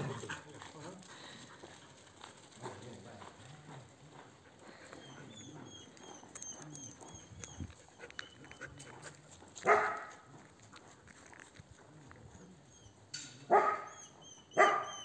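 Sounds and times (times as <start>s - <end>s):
dog barking: 9.6s - 10.3s, 13.5s - 14.0s, 14.6s - 15.0s.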